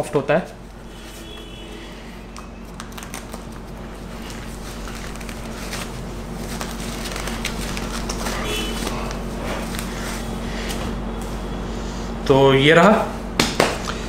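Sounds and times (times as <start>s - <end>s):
steady low hum: 0.0s - 14.0s
fabric sleeve rustling: 0.4s - 11.4s.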